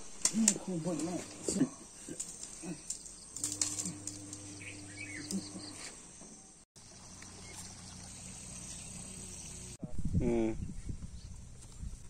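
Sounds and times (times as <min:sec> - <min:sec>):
insects: 0:00.0 - 0:09.8
steady low hum: 0:00.0 - 0:10.5
bird chirps: 0:04.4 - 0:09.8.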